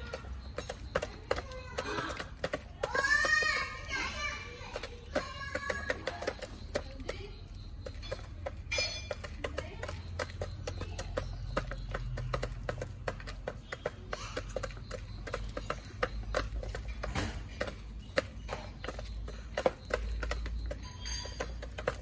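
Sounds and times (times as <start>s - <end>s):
chickens pecking at feeder: 0.0s - 22.0s.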